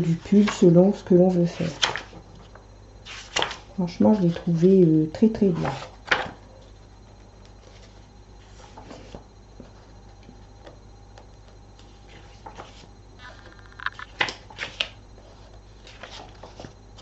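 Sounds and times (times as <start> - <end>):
low steady hum: 0.0 - 17.0
paper pages rustling: 1.5 - 3.7, 11.8 - 12.9, 15.8 - 17.0.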